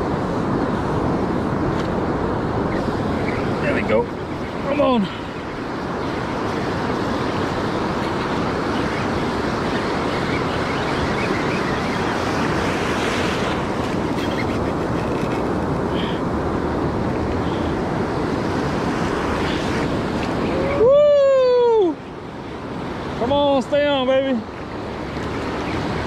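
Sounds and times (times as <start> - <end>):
wind on microphone: 0.0 - 23.6
ocean surf washing in: 0.0 - 26.0.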